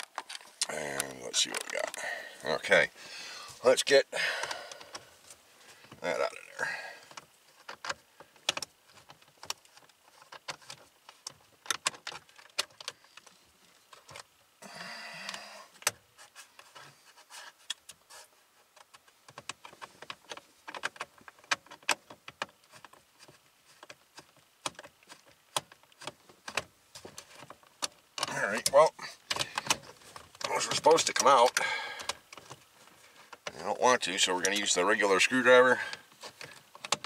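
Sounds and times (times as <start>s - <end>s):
hand tools clicking and tapping: 18.7s - 33.6s, 35.8s - 37.0s.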